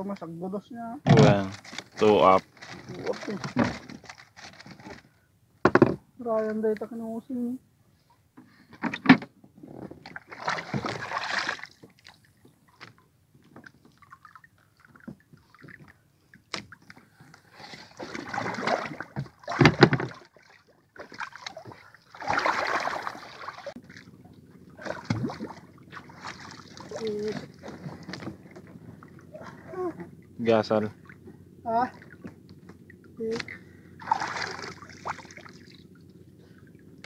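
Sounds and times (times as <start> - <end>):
water splashing and sloshing: 0.0 - 5.1, 8.8 - 37.0
knocks against canoe hull: 5.6 - 6.0, 19.2 - 20.2.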